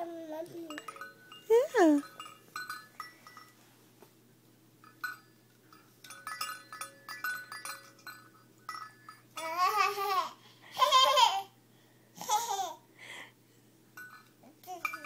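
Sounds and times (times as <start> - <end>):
toy chime tinkling: 0.4 - 3.6, 4.8 - 10.2, 14.0 - 15.0.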